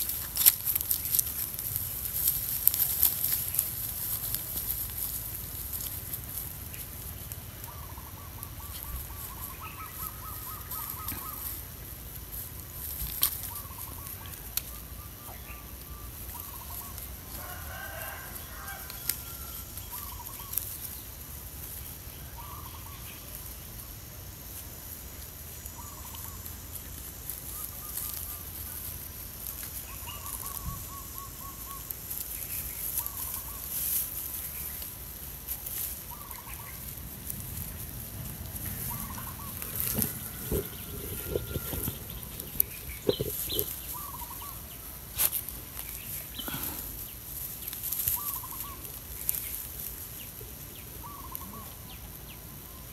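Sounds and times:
chickens clucking: 0:35.9 - 0:47.0.

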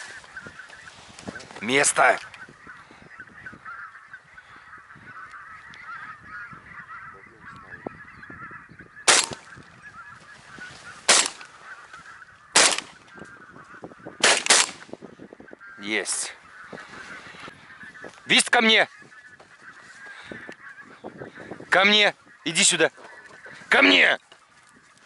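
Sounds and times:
geese honking: 0:00.0 - 0:25.0
shotgun shots: 0:09.1 - 0:09.4, 0:11.1 - 0:11.5, 0:12.6 - 0:13.0, 0:14.2 - 0:14.8.

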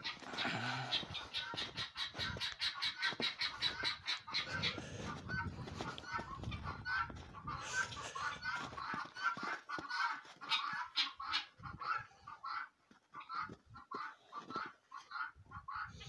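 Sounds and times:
hens clucking: 0:00.0 - 0:16.0.

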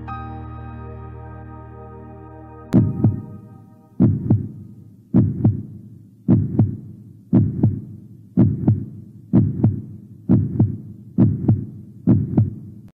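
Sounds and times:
heartbeat: 0:02.8 - 0:03.3, 0:04.0 - 0:12.9.

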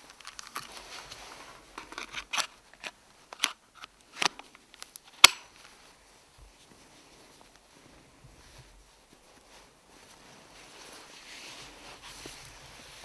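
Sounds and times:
battery pack clicking and rattling: 0:01.8 - 0:05.4.

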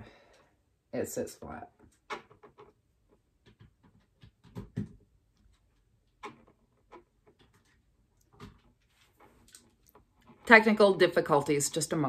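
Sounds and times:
small objects knocking on tabletop: 0:03.4 - 0:05.2.

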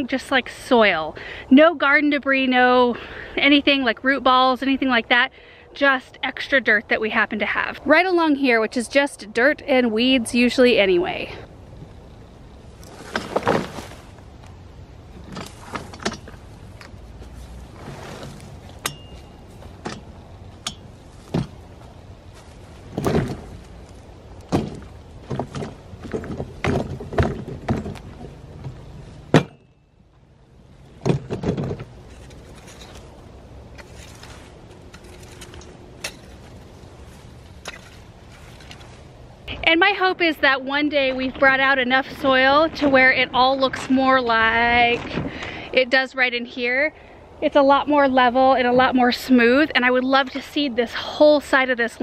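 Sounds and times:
tool scraping dirt: 0:12.7 - 0:14.2, 0:15.2 - 0:21.6, 0:32.0 - 0:39.1
plastic cart knocking and clattering: 0:24.5 - 0:28.3.

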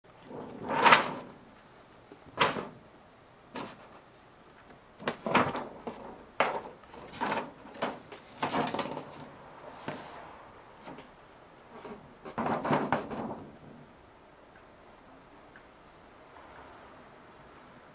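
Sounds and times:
plastic sheet crinkling knocks: 0:12.2 - 0:13.4.

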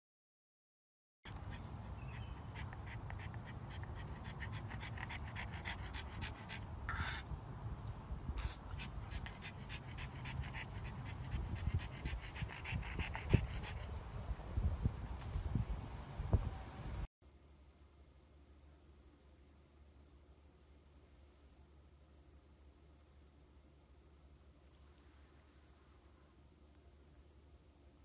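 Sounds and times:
dog panting fast: 0:01.3 - 0:07.3, 0:08.5 - 0:14.2.

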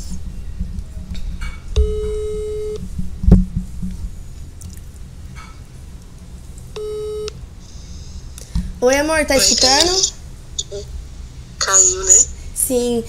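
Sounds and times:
telephone ringback tone: 0:01.8 - 0:02.8, 0:06.8 - 0:07.3.

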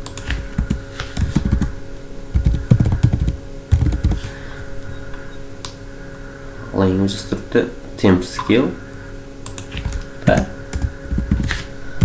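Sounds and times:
computer keyboard typing: 0:00.0 - 0:01.7, 0:02.3 - 0:04.3, 0:09.4 - 0:11.6.

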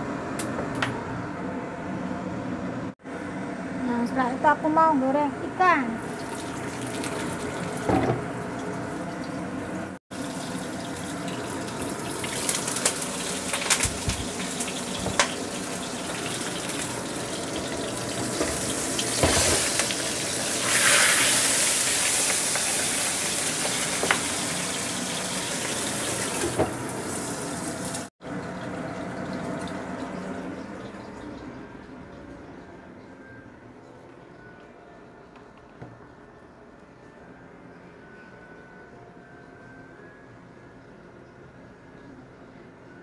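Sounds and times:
fish sizzling in hot oil: 0:10.2 - 0:28.1.

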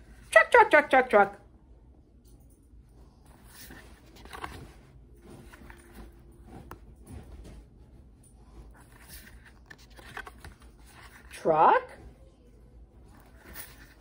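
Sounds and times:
soft taps and rustles: 0:03.2 - 0:11.3
book pages turning: 0:03.3 - 0:06.9, 0:08.7 - 0:11.4, 0:13.1 - 0:14.0.

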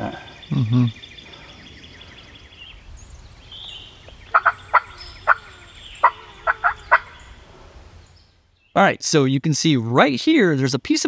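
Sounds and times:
turkey gobbling: 0:04.3 - 0:07.3
hunter's turkey calls: 0:04.3 - 0:07.4.

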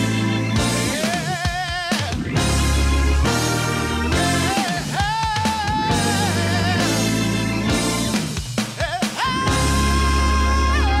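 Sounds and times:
bass line: 0:00.0 - 0:08.6, 0:09.2 - 0:11.0
held chords: 0:00.0 - 0:08.6
melodic line: 0:02.4 - 0:04.8.

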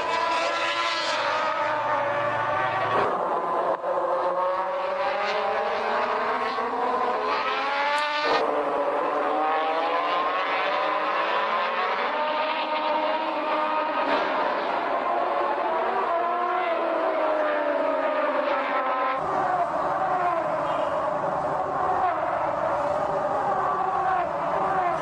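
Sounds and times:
racing motorcycles at high revs: 0:00.0 - 0:25.0.

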